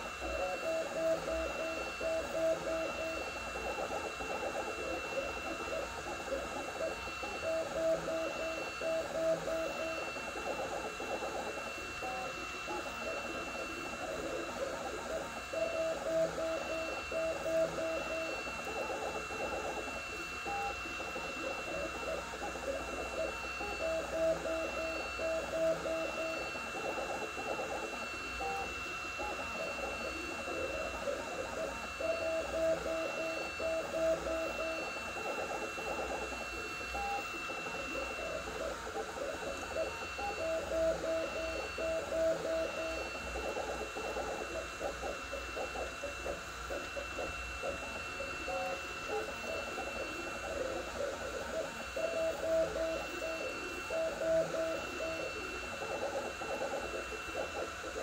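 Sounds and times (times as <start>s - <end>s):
constant high whine: 0.0s - 58.0s.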